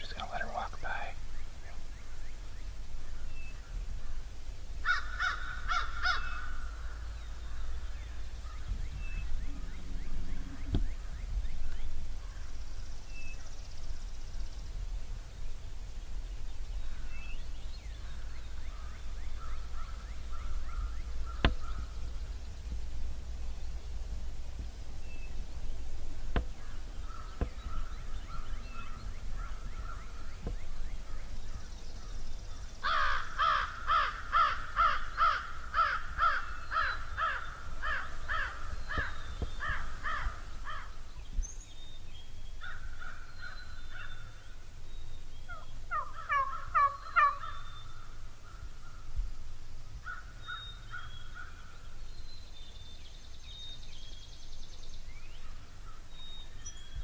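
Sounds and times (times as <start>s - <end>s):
turkey yelping: 45.5s - 47.5s.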